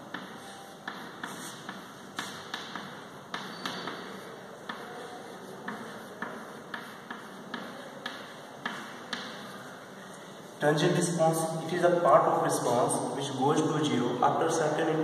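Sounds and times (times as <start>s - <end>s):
chalk writing on a chalkboard: 0.0s - 10.2s.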